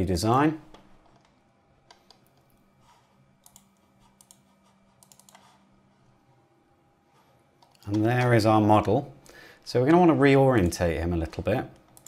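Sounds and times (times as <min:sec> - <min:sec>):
low steady hum: 0:00.0 - 0:12.0
mouse and keyboard clicks: 0:03.4 - 0:04.4, 0:05.0 - 0:05.6.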